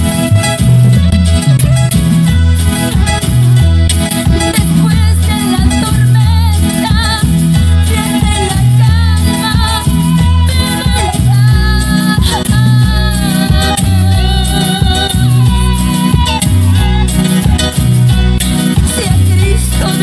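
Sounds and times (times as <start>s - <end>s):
church band playing: 0.0s - 20.0s
woman singing gospel song: 4.8s - 17.0s, 18.8s - 20.0s.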